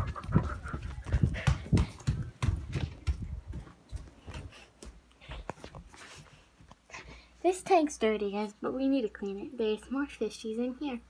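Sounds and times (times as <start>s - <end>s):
footsteps on a floor: 0.0s - 7.2s.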